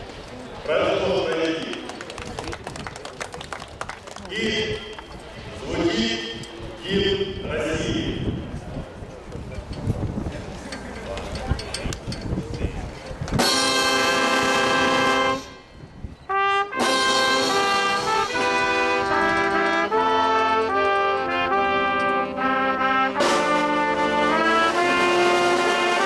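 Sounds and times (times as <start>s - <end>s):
brass playing slow chords: 13.5s - 15.6s, 16.3s - 26.0s.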